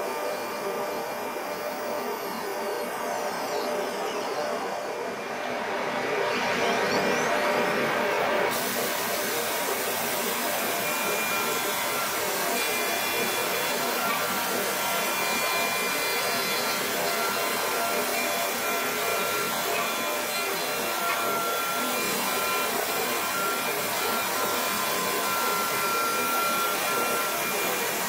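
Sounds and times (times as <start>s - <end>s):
router spindle high whine: 0.0s - 28.0s
wood cutting rushing noise: 8.5s - 28.0s.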